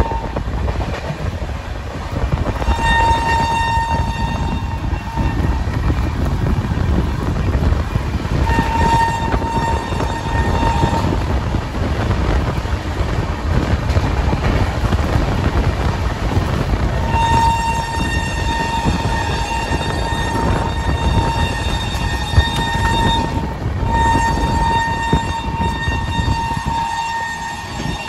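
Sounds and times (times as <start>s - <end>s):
train horn blasts: 0.0s - 0.6s, 2.4s - 12.0s, 16.8s - 28.0s
rushing air: 0.0s - 28.0s
train wheels rumbling: 0.0s - 28.0s.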